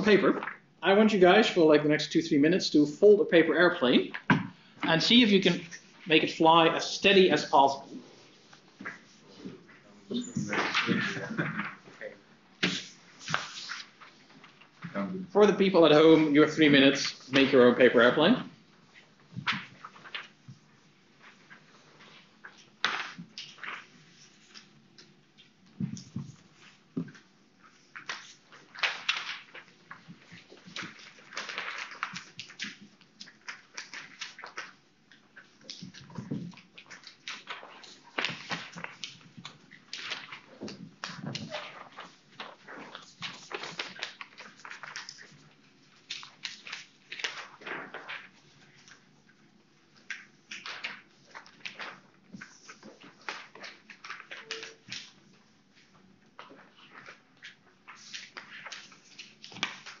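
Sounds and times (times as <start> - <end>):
paper rustling and crackling: 5.1 - 60.0
paper crease scraping: 12.6 - 14.6.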